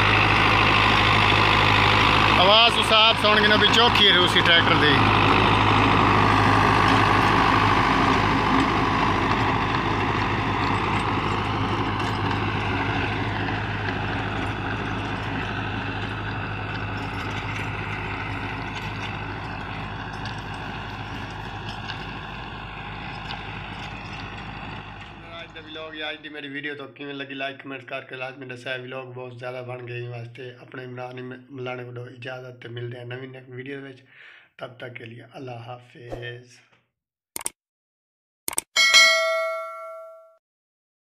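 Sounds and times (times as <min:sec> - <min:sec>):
tractor diesel engine under load: 0:00.0 - 0:26.3.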